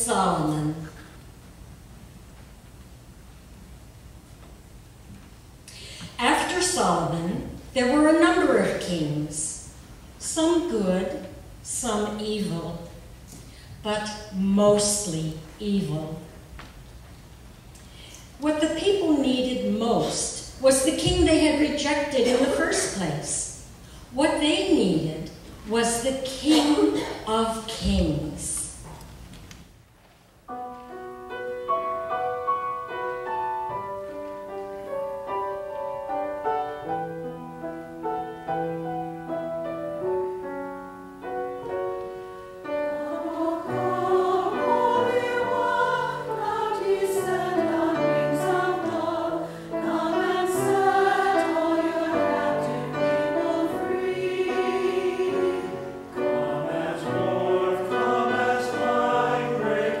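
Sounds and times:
mixed choir singing: 0:42.8 - 1:00.0.

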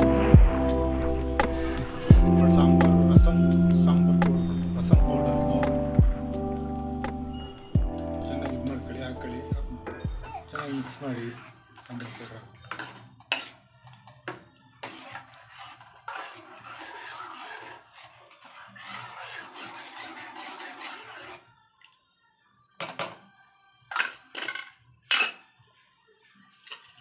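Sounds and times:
metal ladle stirring liquid: 0:10.5 - 0:21.6.

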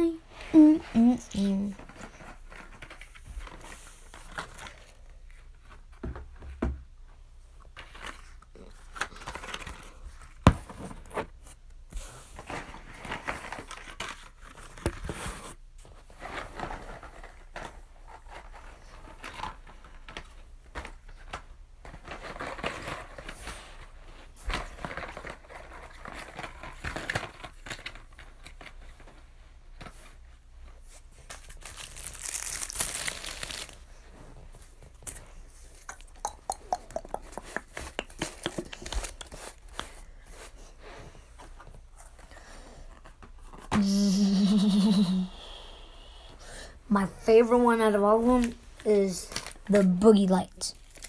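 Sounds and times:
packaging crinkling and rustling: 0:07.6 - 0:36.0, 0:37.3 - 0:40.6, 0:48.2 - 0:51.0.

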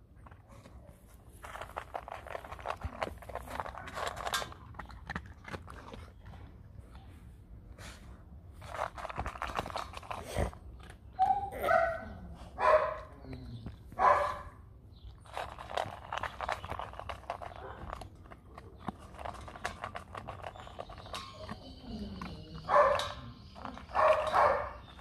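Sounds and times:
dog crunching kibble: 0:00.0 - 0:07.2, 0:07.9 - 0:25.0
dog barking: 0:11.2 - 0:13.1, 0:14.0 - 0:14.5, 0:22.7 - 0:23.2, 0:23.9 - 0:24.8.

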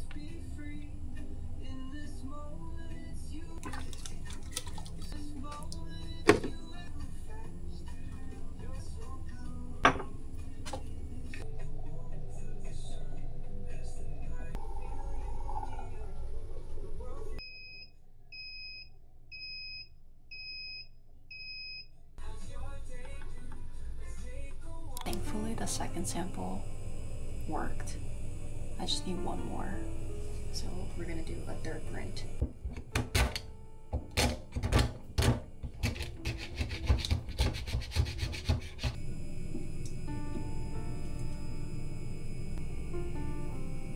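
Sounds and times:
background music: 0:00.0 - 0:15.6, 0:22.2 - 0:35.0, 0:42.6 - 0:43.9
electronic alarm beeping: 0:17.4 - 0:21.9
paper towel scrubbing: 0:35.8 - 0:39.0.

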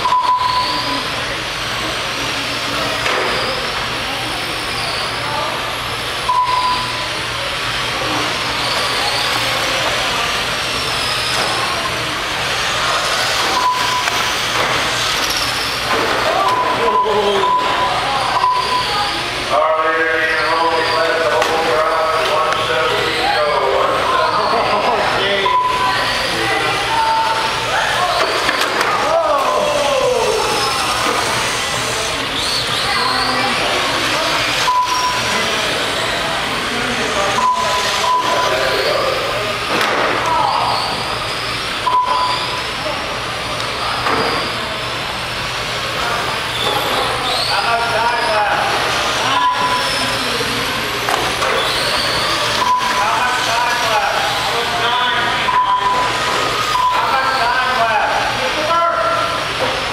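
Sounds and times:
short beeps: 0:00.0 - 0:01.0, 0:06.3 - 0:07.1, 0:13.5 - 0:14.3, 0:16.4 - 0:19.0, 0:25.4 - 0:26.1, 0:34.6 - 0:35.3, 0:37.4 - 0:38.8, 0:41.8 - 0:42.6, 0:49.2 - 0:49.9, 0:52.5 - 0:53.2, 0:55.4 - 0:57.2
background chatter: 0:00.0 - 0:59.9
rc car motors whining: 0:00.0 - 0:59.9.

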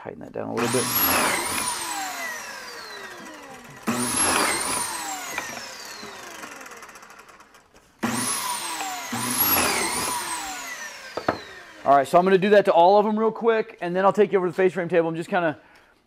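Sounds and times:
drill motor boring holes: 0:00.6 - 0:12.4.

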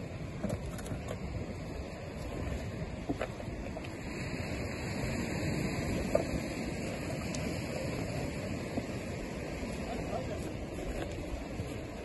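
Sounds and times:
surf washing on rocky shore: 0:00.0 - 0:12.0
wind buffeting microphone: 0:00.0 - 0:12.0.

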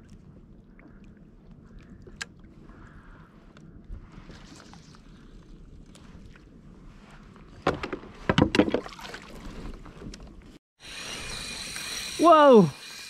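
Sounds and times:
water lapping against kayak hull: 0:00.0 - 0:10.6
fishing rod knocks and clatter: 0:07.6 - 0:09.0
fishing reel drag buzzing: 0:10.8 - 0:13.0.

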